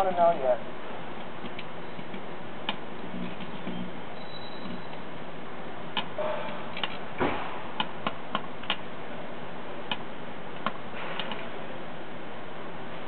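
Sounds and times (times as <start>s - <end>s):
electrical arcing clicks and snaps: 1.1s - 3.9s, 5.9s - 8.9s, 9.8s - 11.6s.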